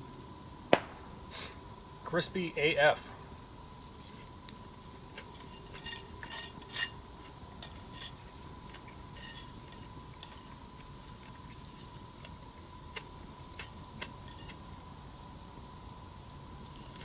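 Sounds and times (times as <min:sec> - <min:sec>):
faint steady tone: 0:00.0 - 0:17.0
metal utensil scraping metal pan: 0:05.3 - 0:07.0, 0:07.6 - 0:08.2, 0:09.2 - 0:10.5.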